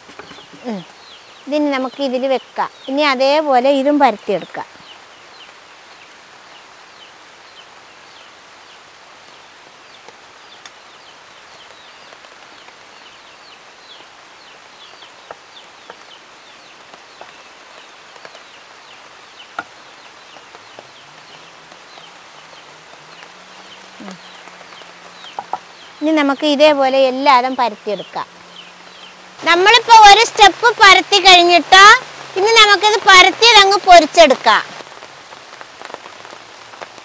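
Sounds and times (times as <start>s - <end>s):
small birds chirping: 0.0s - 37.0s.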